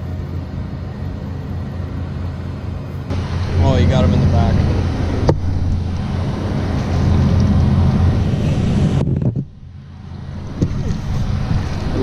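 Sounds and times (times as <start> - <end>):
wind buffeting microphone: 3.1 - 12.0.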